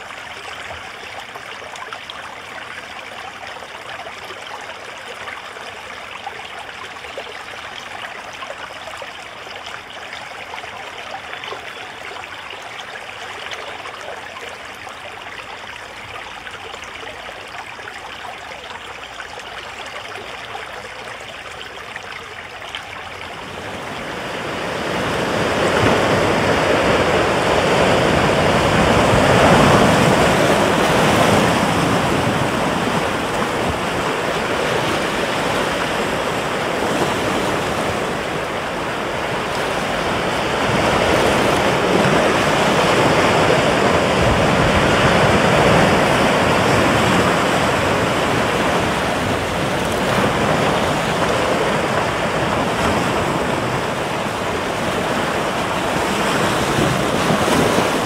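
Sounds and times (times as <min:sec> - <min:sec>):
ocean waves breaking on beach: 0:23.3 - 0:58.0.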